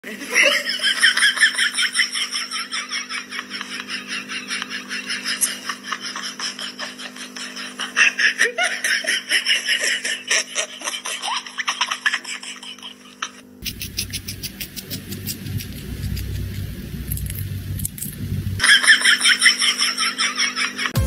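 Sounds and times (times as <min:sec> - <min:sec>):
person giggling: 0:00.0 - 0:13.4
steady low hum: 0:00.1 - 0:21.0.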